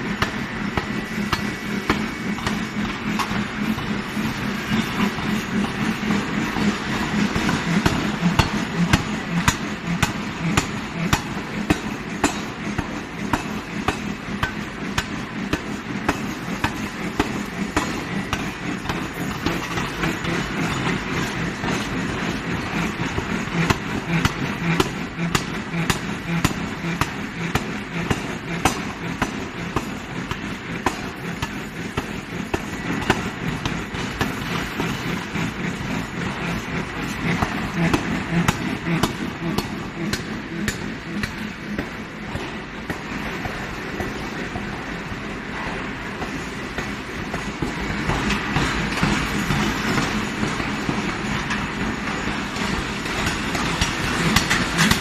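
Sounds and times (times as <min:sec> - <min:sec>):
forge machinery din: 0:00.0 - 0:55.0
power hammer striking steel: 0:00.0 - 0:55.0.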